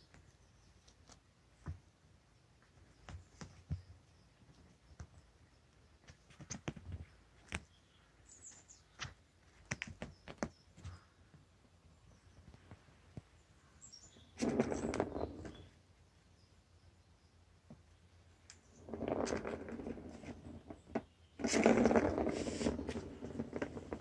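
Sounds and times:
kitten paws tapping and clicking: 2.6s - 7.8s, 8.9s - 11.0s.

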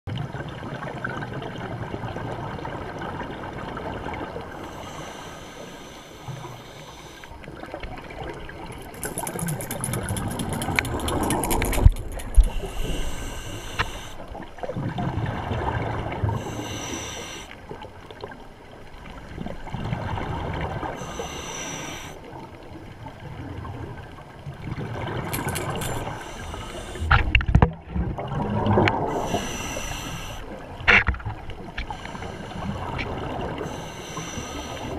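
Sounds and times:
hissy regulator inhalations: 4.7s - 7.4s, 12.4s - 14.2s, 16.4s - 17.6s, 21.0s - 22.2s, 25.3s - 27.4s, 29.1s - 30.6s, 31.8s - 33.0s, 33.6s - 34.9s
sharp clicks: 8.8s - 13.0s, 25.3s - 27.6s.

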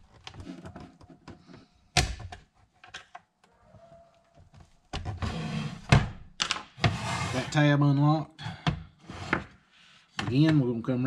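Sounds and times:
plastic case scraping: 6.8s - 7.6s.

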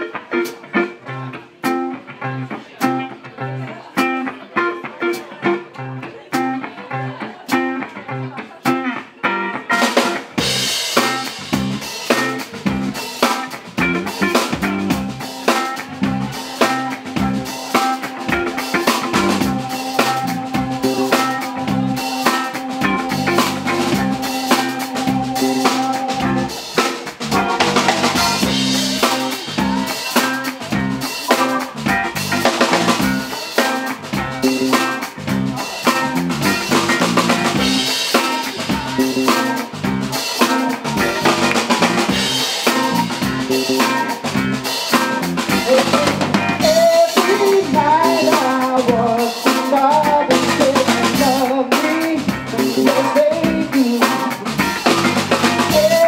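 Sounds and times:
bass: 0.0s - 56.0s
electric guitar: 0.0s - 56.0s
keyboard: 0.0s - 56.0s
drum kit beat: 8.6s - 56.0s
wavering melody line: 16.3s - 26.6s.

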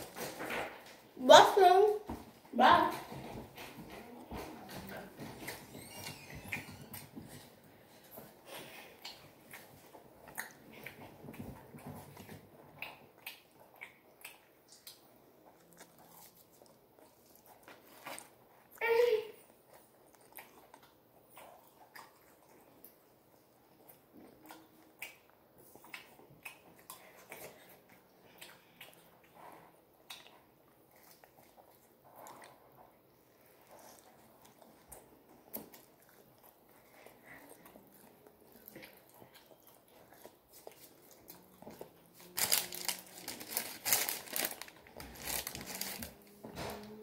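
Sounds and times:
chewing and biting: 3.5s - 18.8s, 19.5s - 46.4s
mouth clicks and smacks: 12.2s - 16.5s.

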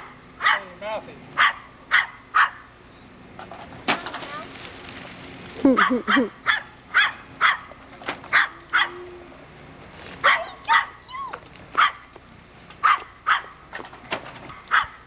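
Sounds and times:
dog barking: 0.4s - 0.8s, 1.4s - 2.7s, 5.8s - 9.0s, 10.2s - 11.0s, 11.8s - 12.1s, 12.8s - 13.6s, 14.5s - 15.0s.

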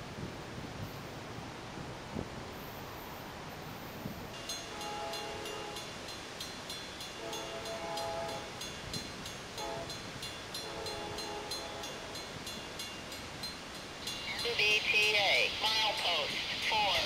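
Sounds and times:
crossing signal bells dinging: 4.3s - 17.0s
train horn blasts: 4.6s - 6.0s, 7.2s - 8.7s, 9.6s - 12.2s.

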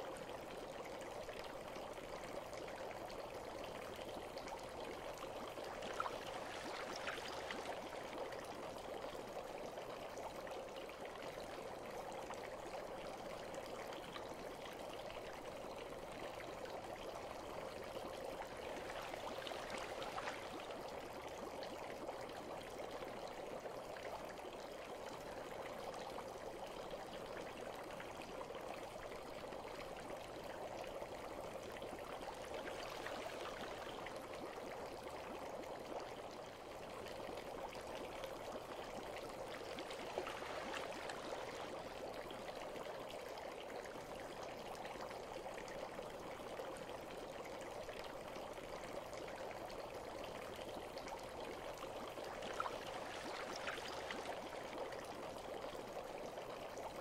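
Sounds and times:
water running and trickling: 2.9s - 9.4s, 18.4s - 21.2s, 37.1s - 43.9s, 49.8s - 57.0s
water splashes: 5.6s - 8.3s, 18.6s - 20.8s, 32.4s - 34.3s, 39.3s - 42.4s, 52.1s - 54.9s.

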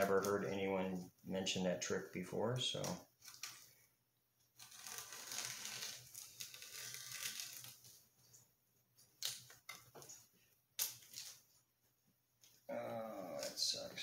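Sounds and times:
masking tape peeling: 4.6s - 8.0s.

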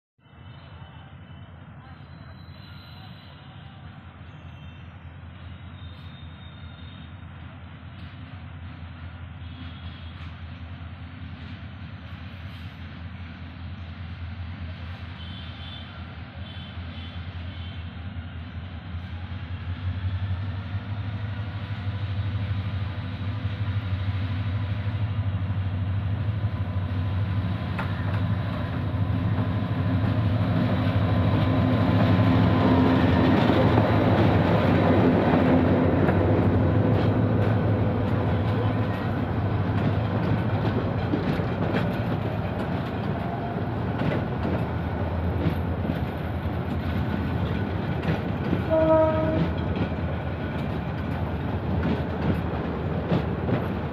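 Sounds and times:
diesel locomotive droning: 0.2s - 53.9s
train wheels clattering over rail joints: 31.4s - 53.9s.

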